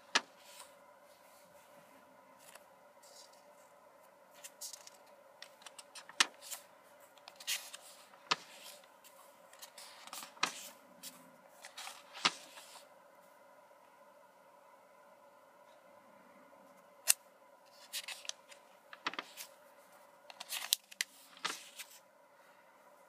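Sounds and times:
paper pages rustling: 2.4 - 12.9, 17.7 - 22.0.

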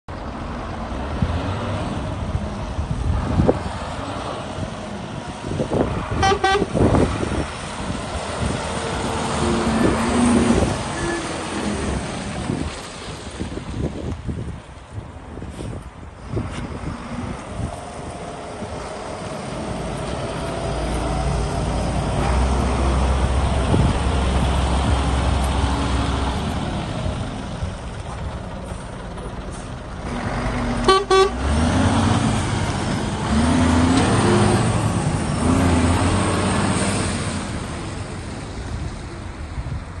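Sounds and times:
truck diesel engine driving by: 0.1 - 40.0
truck horn toot: 6.1 - 6.9, 10.9 - 11.7, 30.8 - 31.6.

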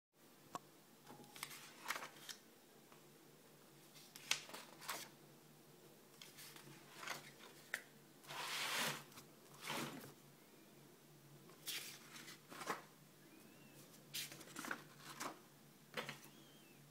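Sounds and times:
sketchbook pages turning: 1.4 - 2.4, 4.0 - 5.1, 6.2 - 9.8.

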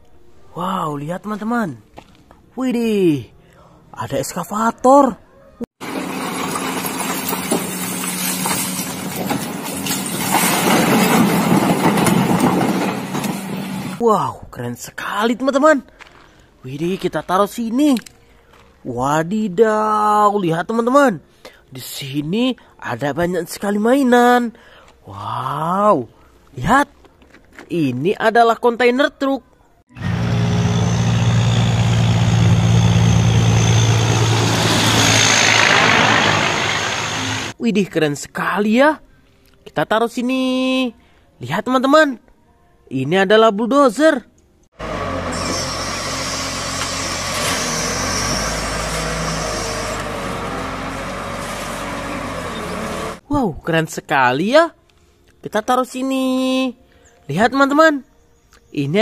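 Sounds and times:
excavator diesel engine running: 5.8 - 8.2, 30.0 - 37.6, 44.8 - 53.2.

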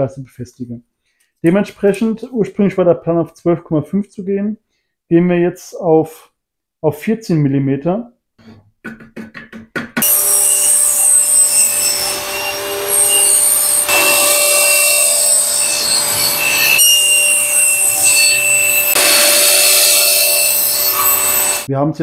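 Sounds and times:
saw blade cutting wood: 10.0 - 21.7
table saw motor whine: 10.0 - 21.7.

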